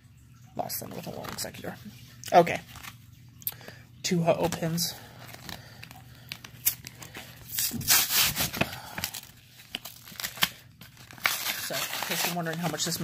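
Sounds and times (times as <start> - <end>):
stiff plastic crinkling: 4.3 - 13.0
plastic tearing: 4.4 - 13.0.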